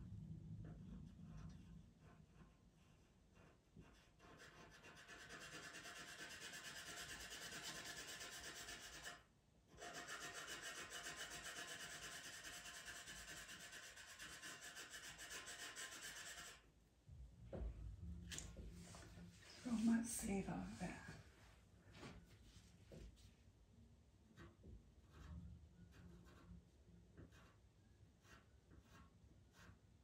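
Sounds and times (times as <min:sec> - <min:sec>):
pencil scratching on paper: 0:00.6 - 0:16.7, 0:24.3 - 0:30.0.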